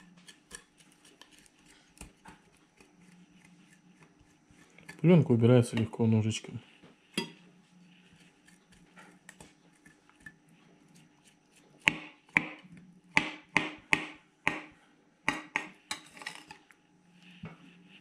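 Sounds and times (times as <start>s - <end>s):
knife scraping cutting board: 0.0s - 5.0s, 7.2s - 11.8s.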